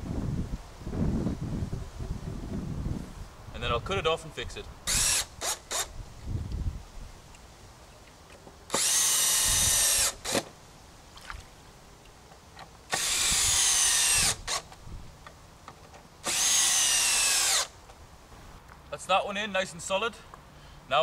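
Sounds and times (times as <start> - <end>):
drill driving screws into wood: 4.8 - 5.9, 8.7 - 10.5, 12.9 - 14.7, 16.2 - 17.7.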